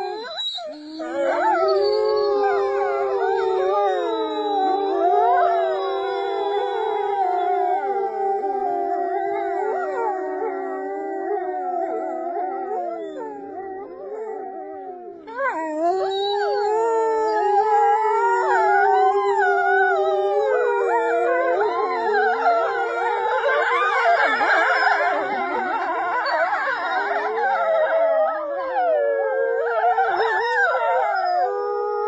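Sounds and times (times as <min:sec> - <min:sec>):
wolves howling in chorus: 0:00.0 - 0:32.0
woman howling: 0:01.0 - 0:32.0.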